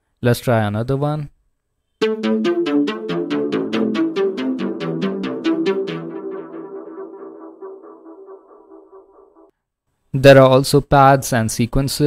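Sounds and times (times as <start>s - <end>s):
synthesizer arpeggio of plucked notes: 2.0s - 9.5s.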